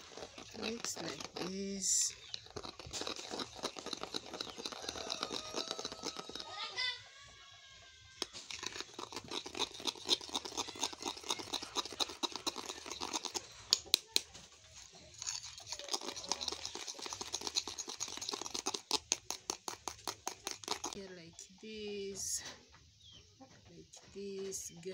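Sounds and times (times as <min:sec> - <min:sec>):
spoon scraping ceramic bowl: 0:00.0 - 0:07.0, 0:08.2 - 0:14.0, 0:14.9 - 0:21.0.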